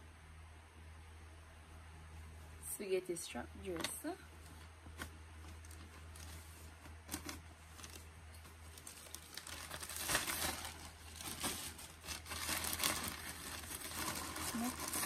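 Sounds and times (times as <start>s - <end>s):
plastic packaging crinkling: 5.0s - 15.0s.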